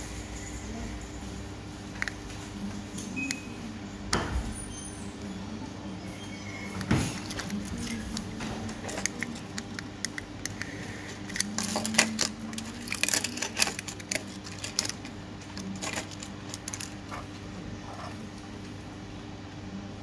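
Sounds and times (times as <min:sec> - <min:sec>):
key fobs clicking and tapping: 0:06.8 - 0:17.3
keyring hooks clinking: 0:11.3 - 0:17.1.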